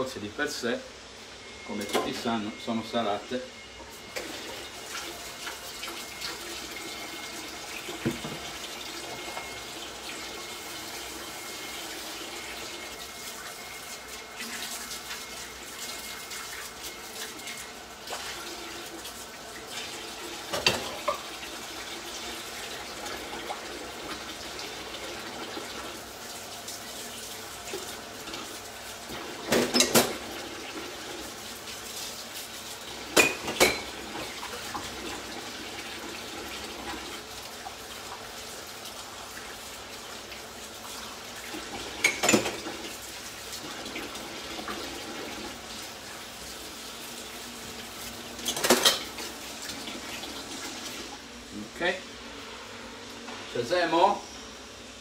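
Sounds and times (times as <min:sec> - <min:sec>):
running water: 0:04.0 - 0:52.0
pots and utensils clinking: 0:20.5 - 0:21.3, 0:29.5 - 0:30.2, 0:33.1 - 0:34.4, 0:41.9 - 0:42.8, 0:48.4 - 0:49.3.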